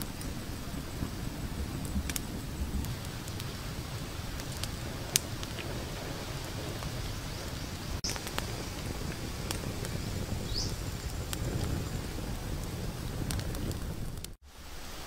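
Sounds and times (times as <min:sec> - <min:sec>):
campfire crackling: 0:00.0 - 0:15.0
bird chirping: 0:10.4 - 0:10.8.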